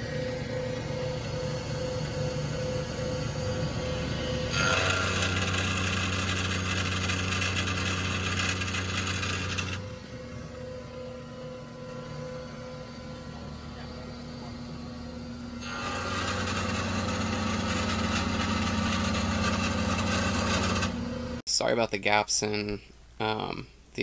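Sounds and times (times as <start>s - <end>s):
milling machine hum: 0.0s - 21.4s
cutter cutting metal: 3.4s - 10.6s, 15.5s - 21.1s.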